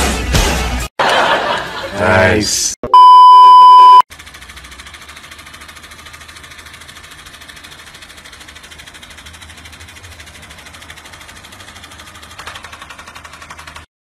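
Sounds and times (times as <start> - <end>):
electric fan hum: 3.7 - 13.8
paper flapping in fan airflow: 4.2 - 13.9.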